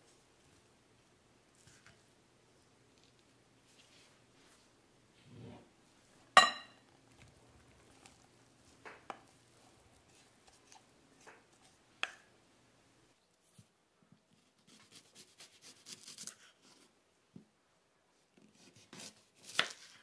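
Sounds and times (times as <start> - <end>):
glass bowls clinking: 6.4 - 6.8.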